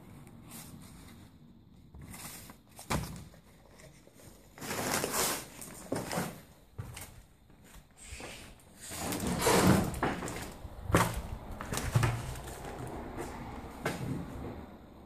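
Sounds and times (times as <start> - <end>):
shuffling and crackling: 0.0 - 14.6
footsteps on littered floor: 4.6 - 14.6.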